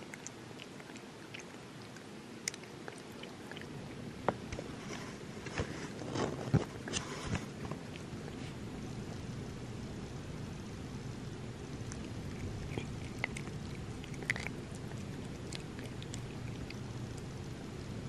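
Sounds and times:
cat licking and chewing: 0:00.0 - 0:09.2, 0:11.3 - 0:17.8
cat mouth smacks: 0:11.8 - 0:16.8.

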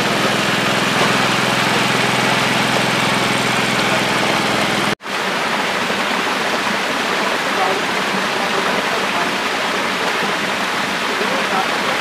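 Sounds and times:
small engine humming: 0:00.0 - 0:05.0
water splashing and churning: 0:00.0 - 0:12.0.

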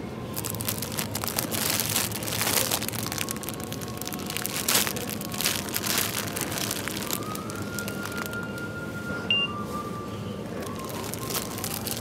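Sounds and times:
plastic packaging crinkling: 0:00.3 - 0:08.7, 0:10.5 - 0:12.0
faint steady electronic tone: 0:09.2 - 0:09.7.

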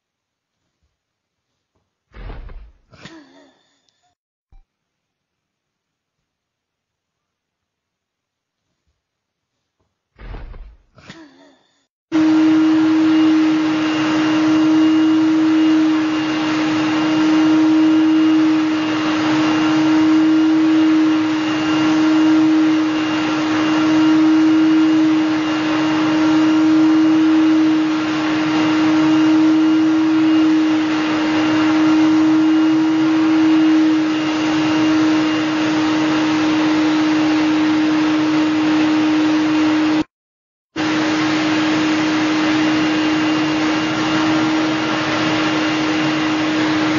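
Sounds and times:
vacuum cleaner humming: 0:12.1 - 0:40.1, 0:40.7 - 0:46.9.

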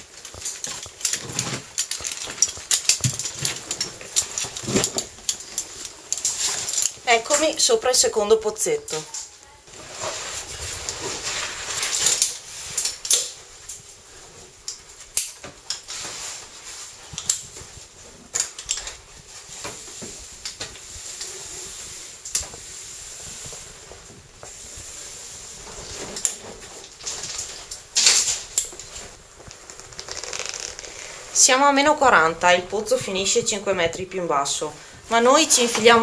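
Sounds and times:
metal gear clicking and clinking: 0:00.0 - 0:07.0
suit rustling: 0:00.0 - 0:36.0
faint hiss: 0:08.9 - 0:32.0.

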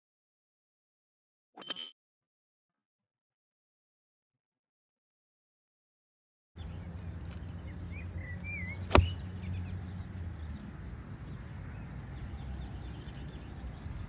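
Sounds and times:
birds chirping: 0:06.6 - 0:14.0
golf club striking ball: 0:08.8 - 0:09.3.

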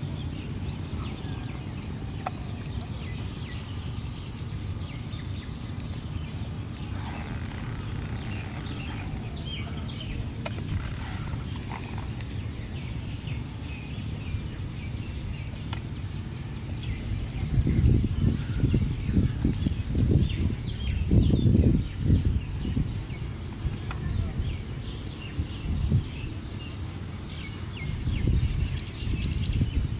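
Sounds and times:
bird chirps: 0:00.0 - 0:29.9
steady low rumble: 0:00.0 - 0:29.9.

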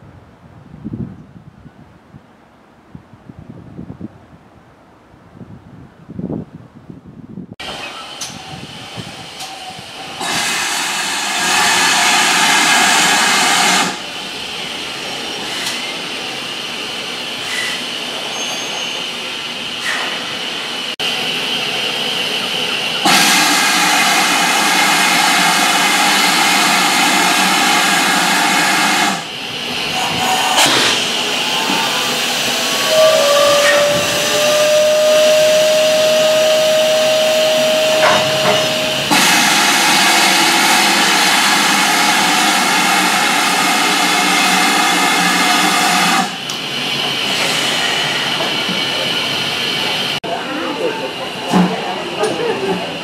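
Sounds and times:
steam hissing: 0:07.6 - 0:21.0, 0:21.6 - 0:50.2
loud steam bursts: 0:07.6 - 0:50.2.

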